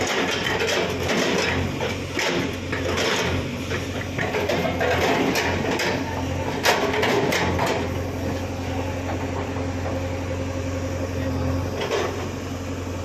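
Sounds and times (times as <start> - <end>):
hydraulic breaker knocking concrete: 0.0 - 8.0
diesel engine running: 0.0 - 13.0.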